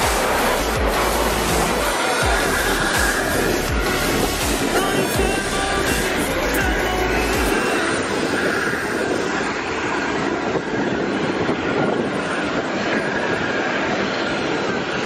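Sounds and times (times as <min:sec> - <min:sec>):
deep low rumble: 0:00.0 - 0:07.4
aircraft engine roar: 0:00.0 - 0:15.0.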